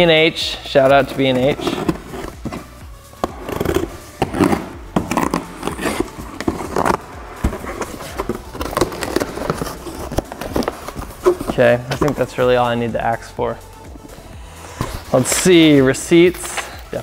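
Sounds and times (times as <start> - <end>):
cardboard scraping and rustling: 0.8 - 12.8, 14.7 - 16.0.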